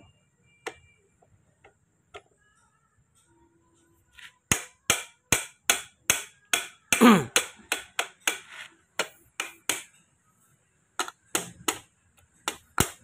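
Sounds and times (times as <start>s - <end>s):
sharp hammer strikes: 4.5s - 10.0s.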